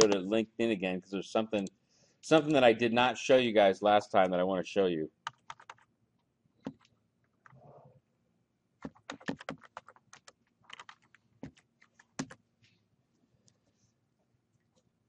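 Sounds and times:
typing on computer keyboard: 5.2s - 5.9s, 8.8s - 12.4s.

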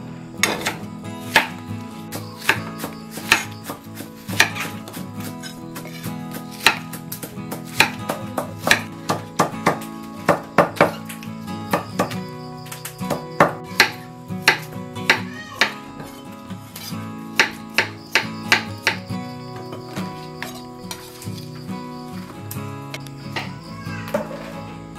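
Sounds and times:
soft background music: 0.0s - 24.9s
knife striking chopping board: 0.4s - 11.0s, 11.7s - 16.1s, 16.8s - 19.0s.

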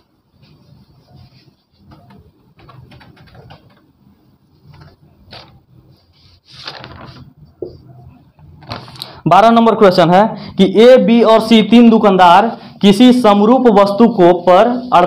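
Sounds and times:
duster wiping a whiteboard: 0.0s - 2.8s, 4.4s - 6.6s, 12.9s - 15.0s.

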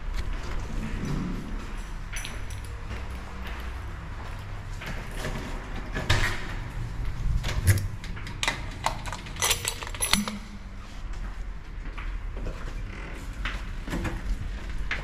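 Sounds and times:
handling knocks and clicks: 7.4s - 11.0s
high metallic jingle: 9.4s - 11.0s.

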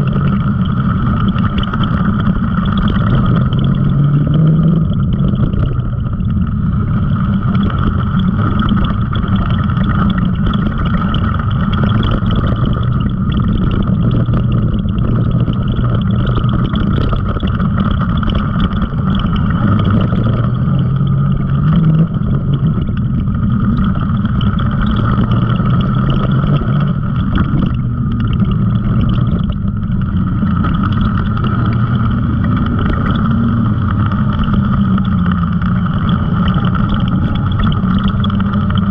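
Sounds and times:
high whine: 0.0s - 38.9s
off-road vehicle engine running: 0.0s - 38.9s.

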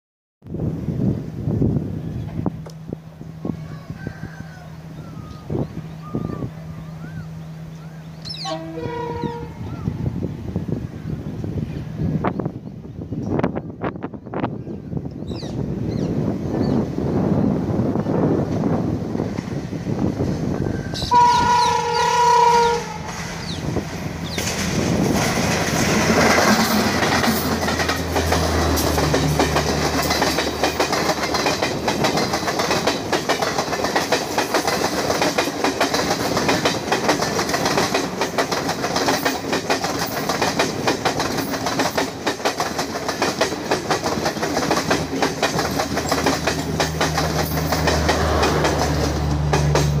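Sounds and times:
locomotive horn blast: 8.3s - 10.0s, 20.9s - 23.4s
train wheels clattering: 18.5s - 50.0s.

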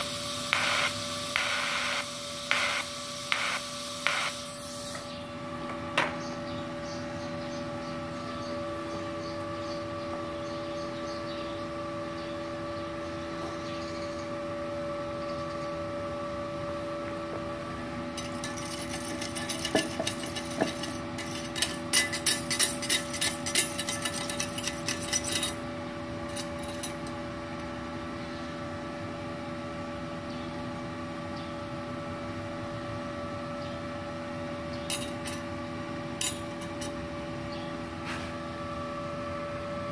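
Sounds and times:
welder humming: 0.0s - 5.7s, 16.6s - 27.7s.

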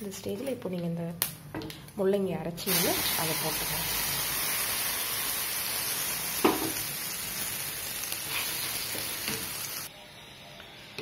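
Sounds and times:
paste sizzling in hot oil: 2.7s - 9.9s.

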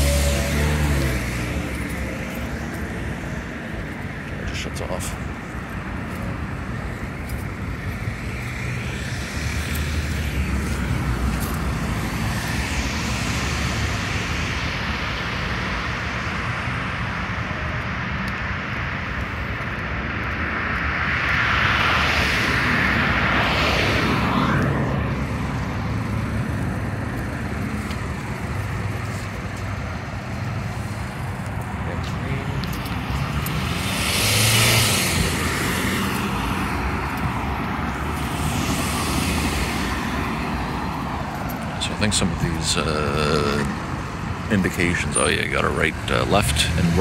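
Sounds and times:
cars driving past: 0.0s - 47.0s.

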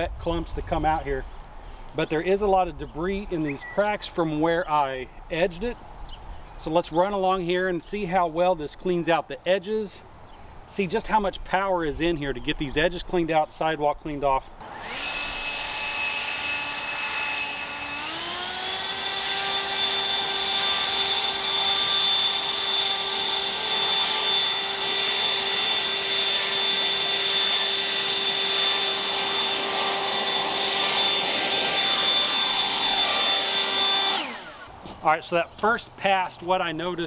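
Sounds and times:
leaf blower whining: 14.6s - 35.7s.

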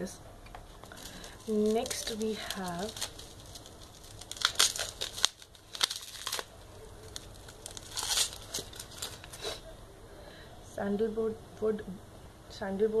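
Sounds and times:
bubble wrap crinkling: 0.6s - 9.7s.

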